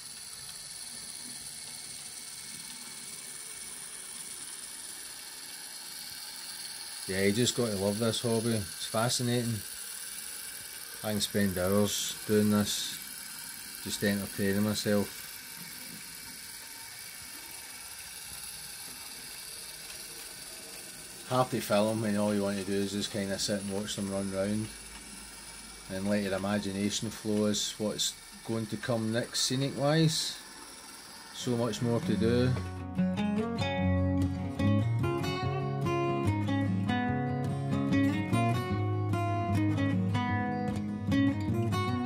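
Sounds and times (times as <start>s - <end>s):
model locomotive gears whirring: 0.0s - 32.8s.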